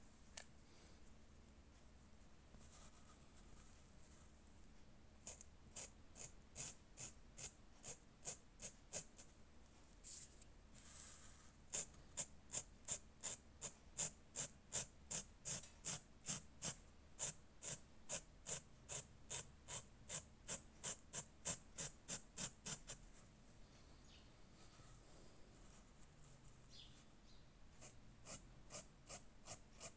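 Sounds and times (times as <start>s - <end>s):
marker scratching on fabric: 5.2s - 9.3s, 10.0s - 23.2s, 27.8s - 29.9s.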